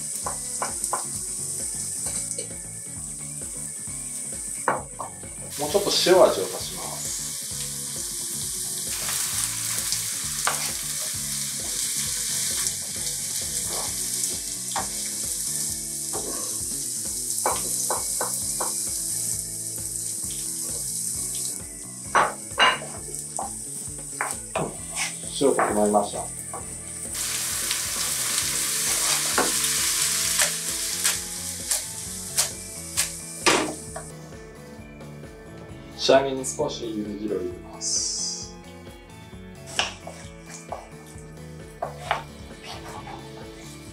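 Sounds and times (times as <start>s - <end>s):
vegetables sizzling in frying pan: 0.0s - 34.1s.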